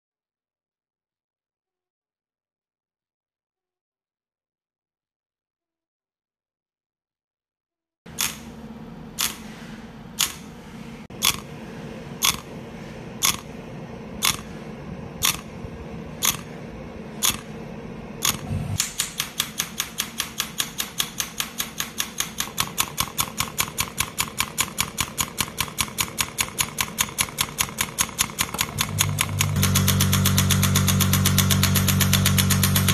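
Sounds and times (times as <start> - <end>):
pneumatic pulses as sharp clicks: 8.1 - 12.6, 13.2 - 13.6, 14.2 - 14.6, 15.2 - 15.6, 16.2 - 17.6, 18.2 - 32.9
steady machine hum: 8.1 - 32.9.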